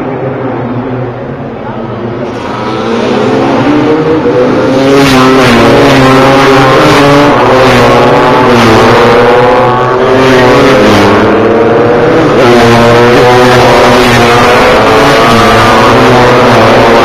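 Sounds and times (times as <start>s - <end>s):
racing motorcycle engines: 0.0s - 17.0s.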